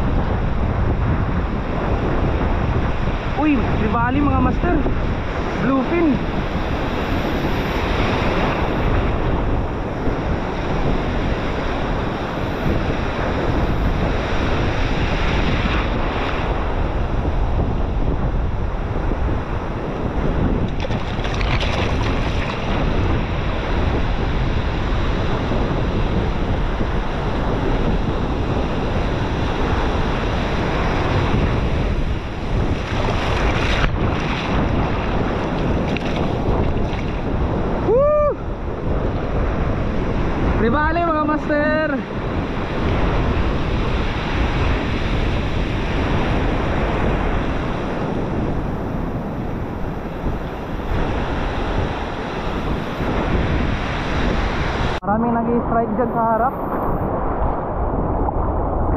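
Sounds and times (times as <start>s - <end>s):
wind buffeting microphone: 0.0s - 58.9s
surf breaking: 19.7s - 27.4s, 28.2s - 37.9s.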